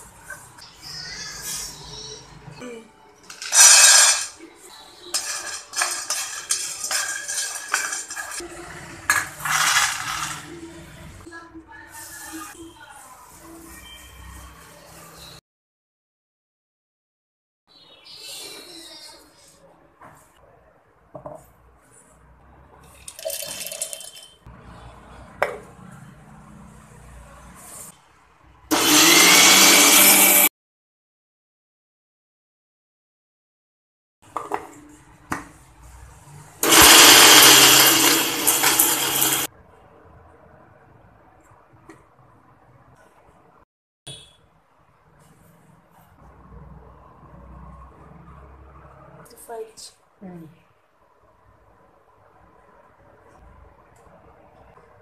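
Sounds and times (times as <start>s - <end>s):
chickpeas clattering against pan: 5.1s - 8.4s, 9.1s - 10.5s
chickpeas poured into pan: 9.1s - 10.6s, 36.6s - 39.5s.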